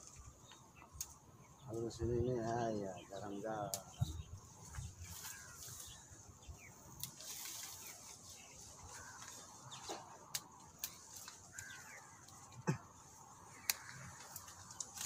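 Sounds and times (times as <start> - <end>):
leaves rustling and stems snapping: 0.0 - 1.2, 3.6 - 6.1, 6.9 - 15.0
bird chirps: 0.0 - 10.1.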